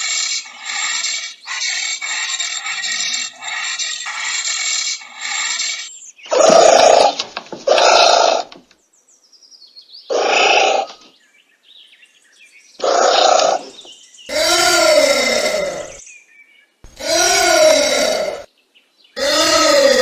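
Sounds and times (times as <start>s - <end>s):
rough animal calls: 0.0s - 8.6s, 10.1s - 11.0s, 12.8s - 16.0s, 16.9s - 18.5s, 19.2s - 20.0s.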